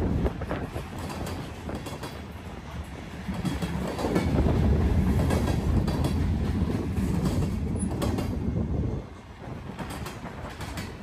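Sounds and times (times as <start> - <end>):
wheels clacking over rail joints: 0.0 - 8.5, 9.4 - 11.0
freight train wheels rumbling: 0.0 - 11.0.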